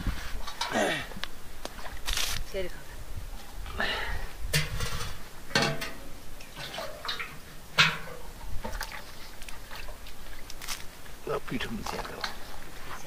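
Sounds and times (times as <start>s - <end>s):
water splashing in steel plate: 5.5s - 9.1s.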